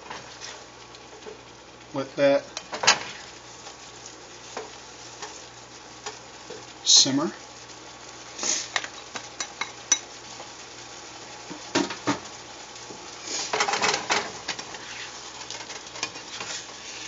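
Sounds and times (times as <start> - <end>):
low sizzle: 0.0 - 17.0
plastic spatula scraping a pan: 14.6 - 15.3, 16.0 - 17.0.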